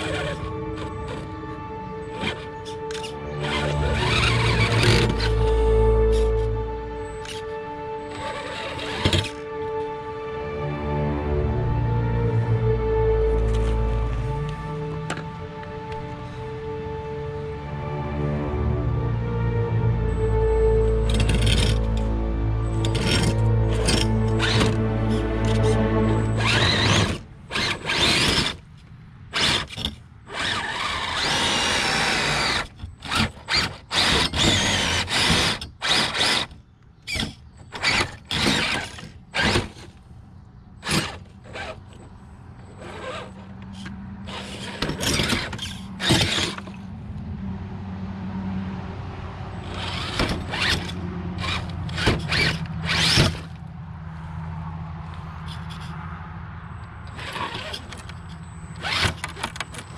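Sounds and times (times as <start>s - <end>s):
tyres scraping on rocks: 0.0s - 9.6s, 21.1s - 22.1s, 22.7s - 40.0s, 40.8s - 46.9s, 49.6s - 53.7s, 55.0s - 56.0s, 57.1s - 59.9s
electric motor whirring: 0.0s - 10.0s, 20.8s - 28.6s, 29.3s - 39.9s, 42.8s - 46.8s, 49.6s - 53.6s, 58.8s - 59.9s.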